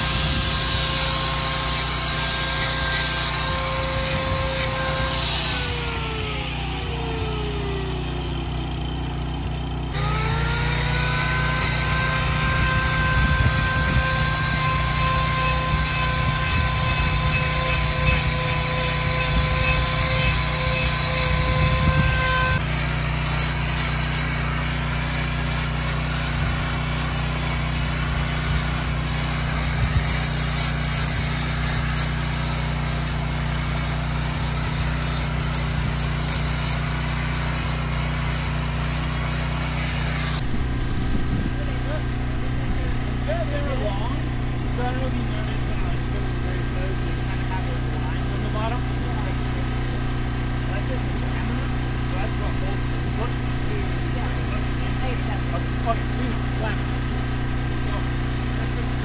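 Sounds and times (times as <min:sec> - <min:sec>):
hoof grinder whine: 0:00.0 - 0:59.0
rough grinding noise: 0:00.0 - 0:59.0
low hum: 0:40.2 - 0:46.8.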